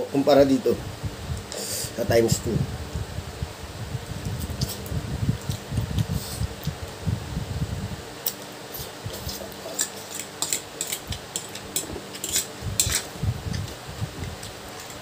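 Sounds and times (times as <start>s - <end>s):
fork clicking against plastic plate: 9.8s - 13.1s.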